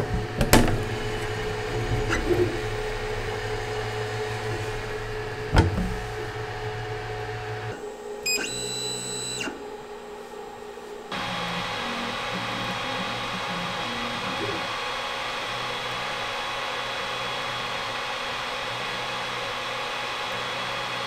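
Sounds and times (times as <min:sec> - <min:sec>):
printer fans humming: 0:00.0 - 0:21.0
brief high whine: 0:01.4 - 0:09.7.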